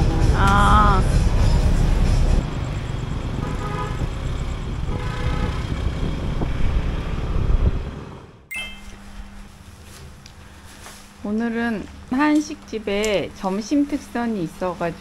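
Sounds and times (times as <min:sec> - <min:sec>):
cars and scooters driving past: 0:00.0 - 0:08.5.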